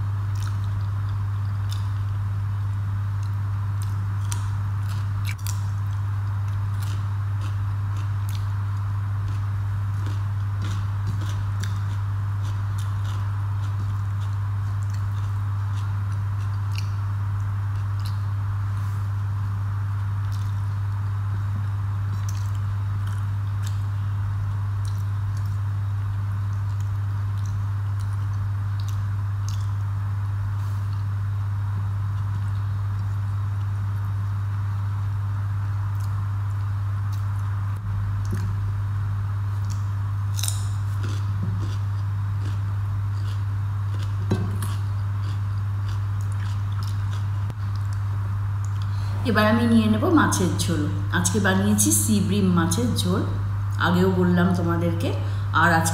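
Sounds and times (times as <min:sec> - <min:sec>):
steady low hum: 0:00.0 - 0:55.9
person chewing: 0:00.3 - 0:19.1, 0:20.0 - 0:21.2, 0:22.1 - 0:24.0, 0:24.6 - 0:29.9, 0:35.8 - 0:37.6, 0:38.2 - 0:38.6, 0:39.5 - 0:49.2.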